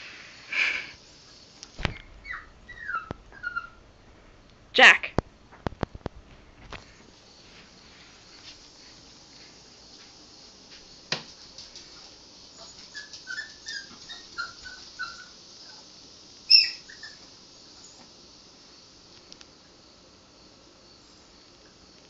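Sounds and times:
small dog whining yips: 1.9 - 3.8, 12.6 - 15.4, 16.5 - 17.2
dog yelping: 2.2 - 3.8, 12.6 - 15.8, 16.5 - 17.2.

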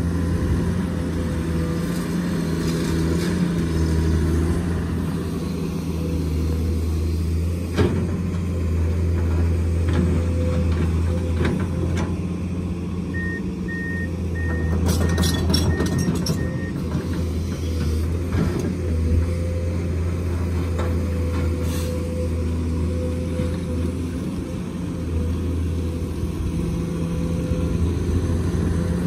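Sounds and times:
excavator diesel engine running: 0.0 - 29.0
reversing alarm beeping: 13.1 - 16.8.

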